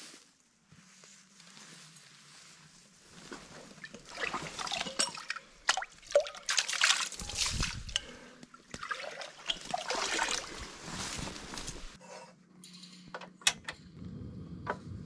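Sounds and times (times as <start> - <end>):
water sloshing and splashing: 3.2 - 12.0
trickling creek: 3.6 - 12.0.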